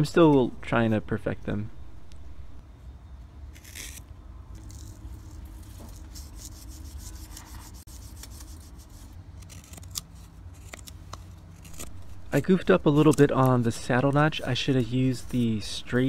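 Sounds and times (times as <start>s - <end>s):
knife scraping wood: 3.5s - 4.0s, 4.6s - 13.5s.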